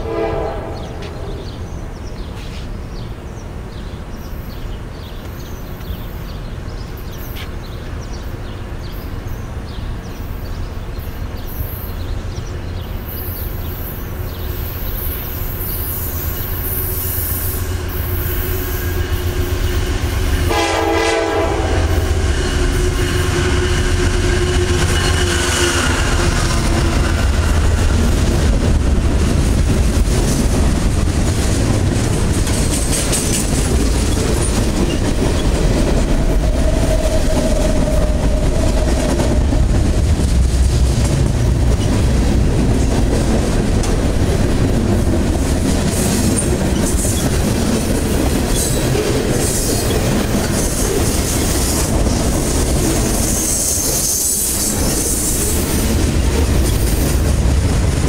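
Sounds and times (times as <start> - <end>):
freight train wheels rumbling: 0.0 - 58.0
wheels clacking over rail joints: 22.6 - 58.0.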